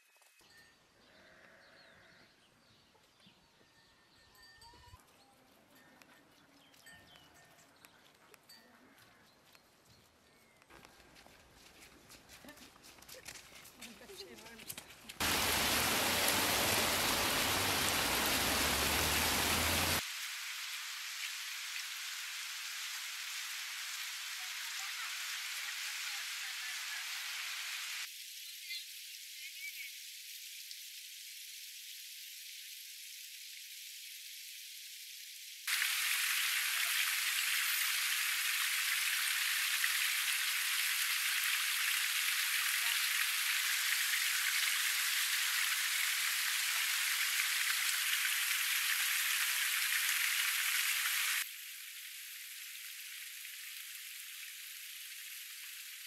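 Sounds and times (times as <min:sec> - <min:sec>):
waterfall splashing: 0:15.2 - 0:28.1, 0:35.7 - 0:51.5.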